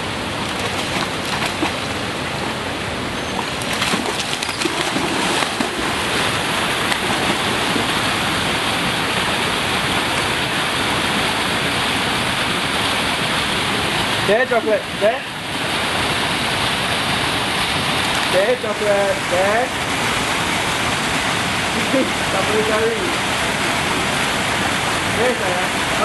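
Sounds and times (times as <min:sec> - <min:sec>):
stream rushing over rocks: 0:00.0 - 0:26.0
dog splashing in water: 0:00.4 - 0:02.0, 0:03.2 - 0:09.8.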